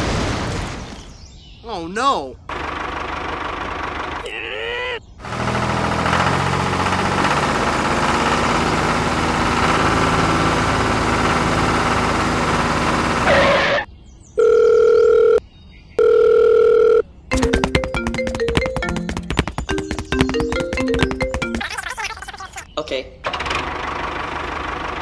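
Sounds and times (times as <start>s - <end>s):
small tractor engine running: 2.5s - 4.3s, 5.2s - 13.8s, 17.3s - 21.8s, 23.2s - 25.0s
electronic telephone tones: 14.4s - 15.4s, 16.0s - 19.0s.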